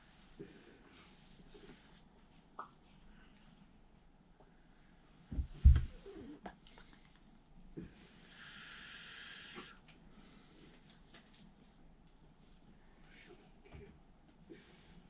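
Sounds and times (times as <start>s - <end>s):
soft taps and rustles: 5.3s - 7.3s.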